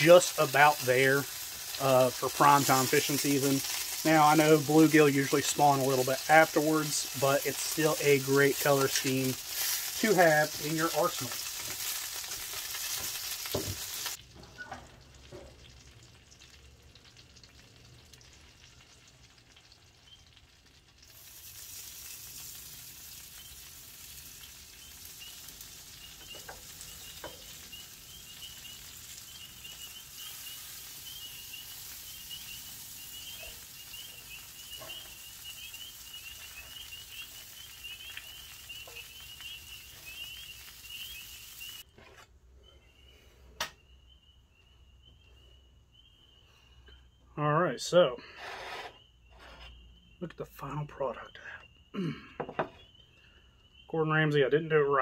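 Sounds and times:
chicken wings sizzling on grill: 0:00.0 - 0:41.9.

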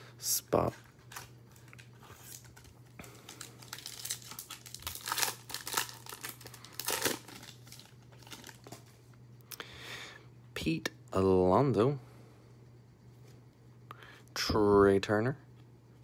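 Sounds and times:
foil wrapper crinkling and tearing: 0:00.7 - 0:08.9.

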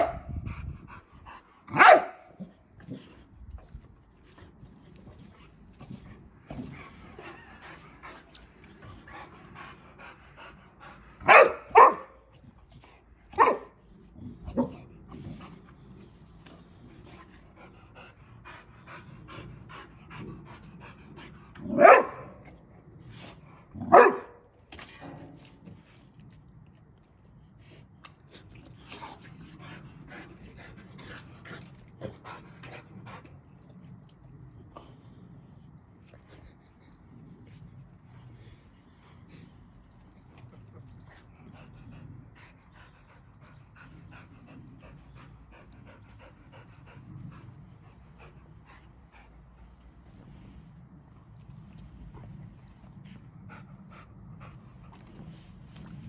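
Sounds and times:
dog barking: 0:01.7 - 0:02.3, 0:11.2 - 0:12.2, 0:13.4 - 0:13.7, 0:21.7 - 0:22.3, 0:23.8 - 0:24.4
dog panting: 0:02.7 - 0:11.6, 0:14.4 - 0:21.6, 0:27.1 - 0:56.0.

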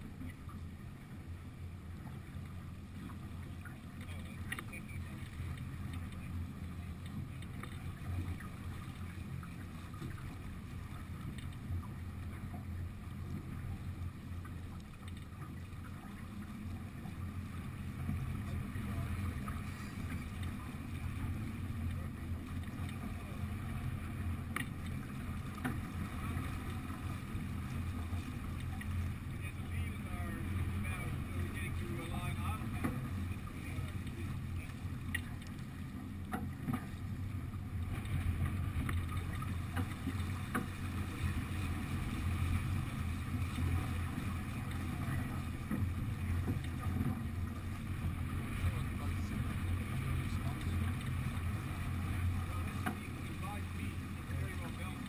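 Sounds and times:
faint clicks and knocks from boat: 0:00.0 - 0:55.0
wind and water rushing: 0:00.0 - 0:55.0.

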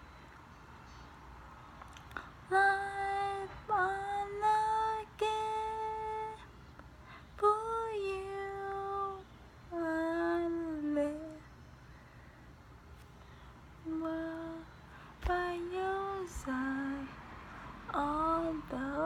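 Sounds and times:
person singing a hymn: 0:02.5 - 0:06.5, 0:13.8 - 0:17.3, 0:17.9 - 0:19.0.

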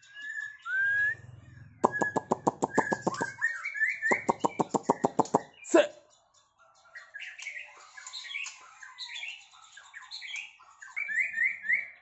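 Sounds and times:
bird singing whistled notes: 0:00.0 - 0:05.8, 0:10.2 - 0:12.0.

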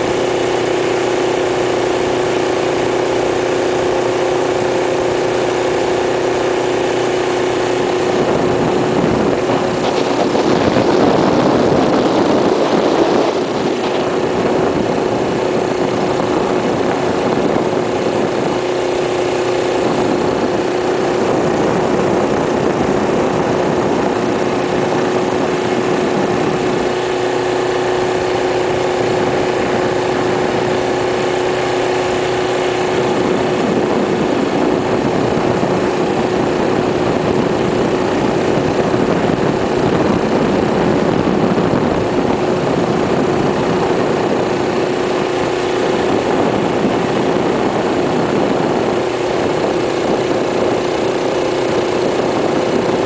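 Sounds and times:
rushing noise: 0:00.0 - 0:53.0.

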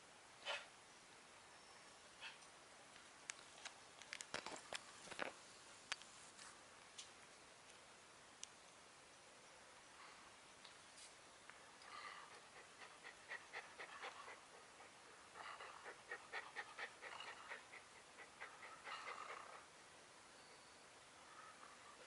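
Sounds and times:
puppy panting rapidly: 0:12.3 - 0:19.6.

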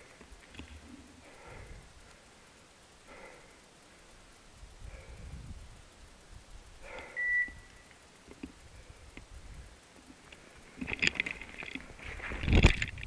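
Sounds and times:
rustling and crackling in undergrowth: 0:00.0 - 0:13.0
short electronic beep: 0:07.2 - 0:07.8.

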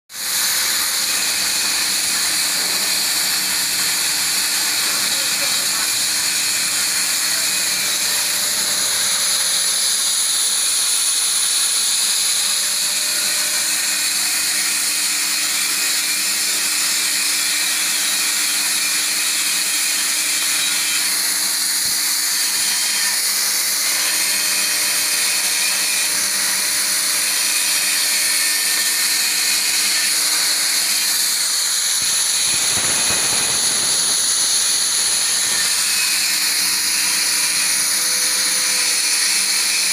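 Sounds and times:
plasma cutter hissing: 0:00.2 - 0:11.2, 0:27.6 - 0:38.0.

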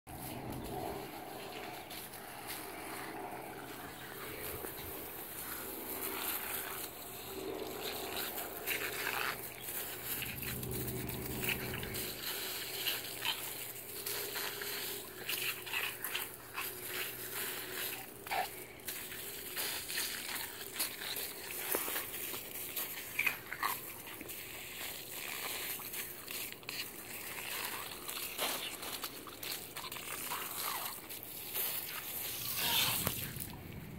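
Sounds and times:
water spraying from hose: 0:04.4 - 0:33.5.

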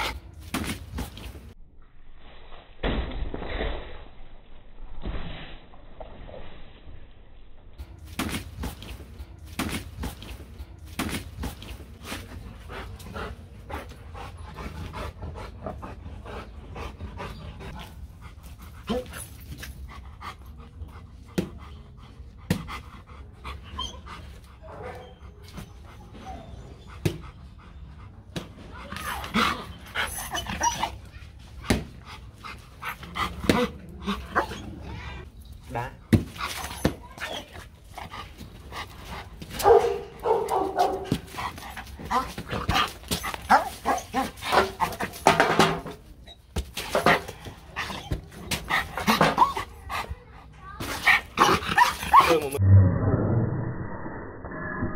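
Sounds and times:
dog panting: 0:11.6 - 0:30.6.

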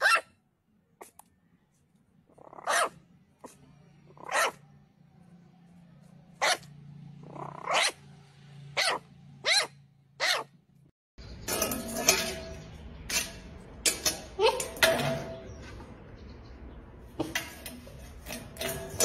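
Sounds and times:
puppy yapping: 0:00.0 - 0:00.4, 0:02.3 - 0:04.6, 0:06.4 - 0:08.0, 0:08.7 - 0:10.5.

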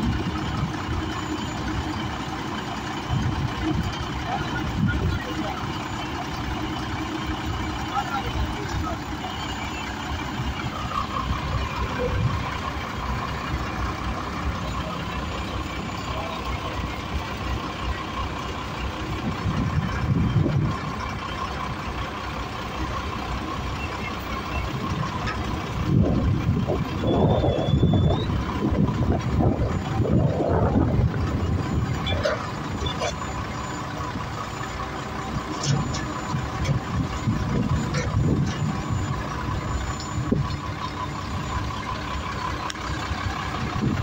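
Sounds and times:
crane high whine: 0:00.0 - 0:44.0
truck engine rumble: 0:00.0 - 0:44.0.

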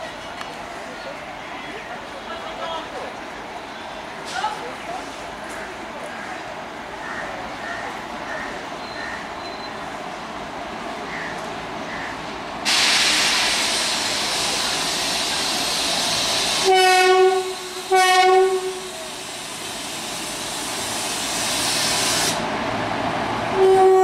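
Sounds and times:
steady loud hiss: 0:12.3 - 0:23.3
locomotive horn blasts: 0:16.6 - 0:18.9, 0:23.6 - 0:24.0.

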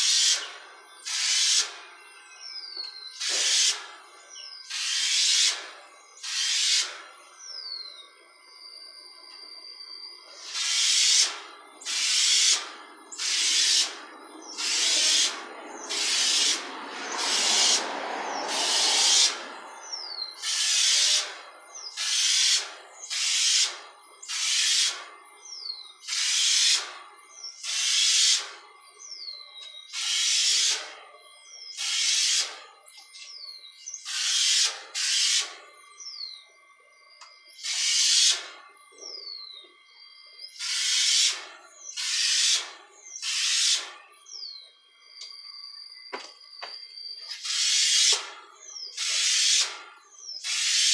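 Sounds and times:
spray gun hissing in bursts: 0:00.0 - 0:01.8, 0:03.1 - 0:04.0, 0:04.6 - 0:07.2, 0:10.3 - 0:25.2, 0:26.0 - 0:27.0, 0:27.6 - 0:28.7, 0:29.9 - 0:31.0, 0:31.7 - 0:32.7, 0:33.8 - 0:35.6, 0:37.6 - 0:38.6, 0:40.5 - 0:44.0, 0:47.3 - 0:50.9
bird calls: 0:00.0 - 0:50.9.

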